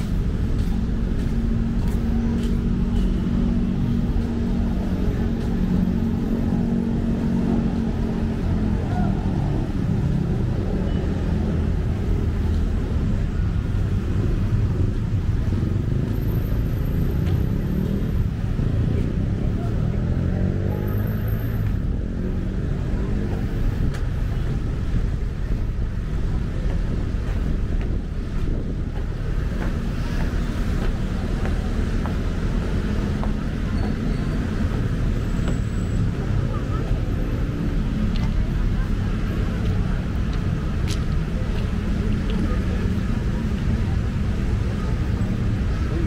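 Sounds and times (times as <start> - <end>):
city road traffic rumble: 0.0 - 46.0
wind buffeting microphone: 23.4 - 31.3.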